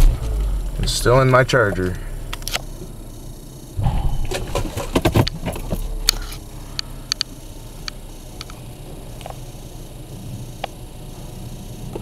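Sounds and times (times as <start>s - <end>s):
car wash machine rumbling: 0.0s - 12.0s
knocking and rubbing: 3.8s - 6.4s
sharp clicks: 4.3s - 8.6s.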